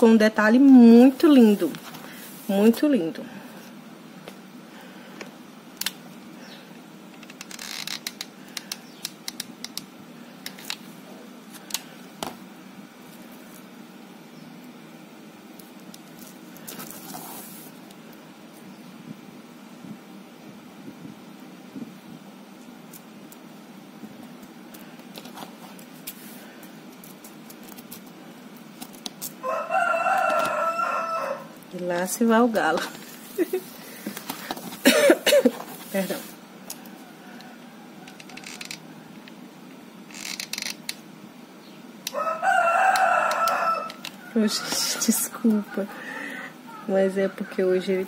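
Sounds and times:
steady low hum: 0:00.0 - 0:48.0
rooster crowing: 0:29.4 - 0:31.6, 0:36.8 - 0:39.1, 0:42.1 - 0:45.1.

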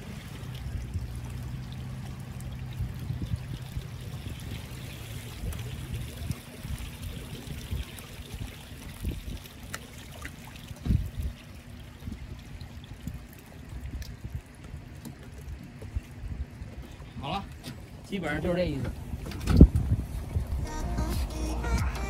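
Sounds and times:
wind rumbling on microphone: 0:00.0 - 0:09.6, 0:10.8 - 0:14.9, 0:18.8 - 0:22.0
small waves lapping against a dock: 0:00.0 - 0:20.7.

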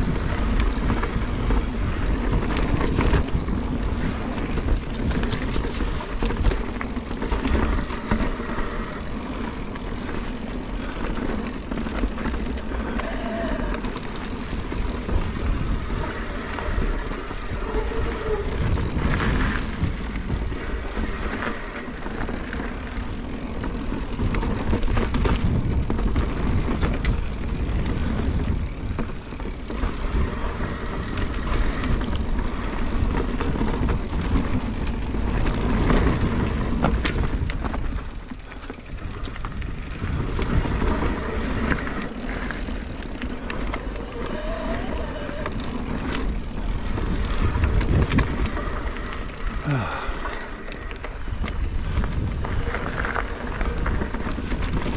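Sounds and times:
bike knocks and rattles: 0:00.0 - 0:13.0, 0:13.8 - 0:44.3
tyres rumbling on dirt: 0:00.0 - 0:54.9.

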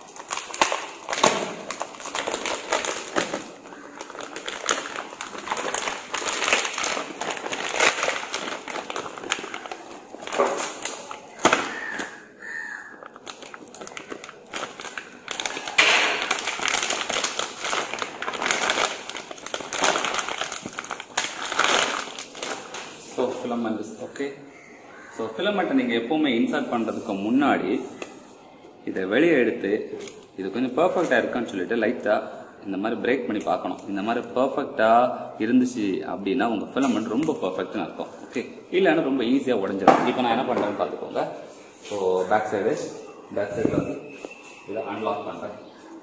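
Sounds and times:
plastic bag crinkling: 0:00.0 - 0:23.6.

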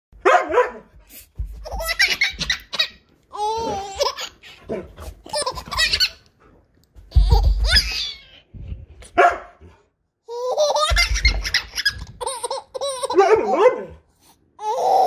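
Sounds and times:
baby laughing: 0:01.6 - 0:06.3, 0:07.1 - 0:08.4, 0:10.3 - 0:13.6, 0:14.6 - 0:15.0.

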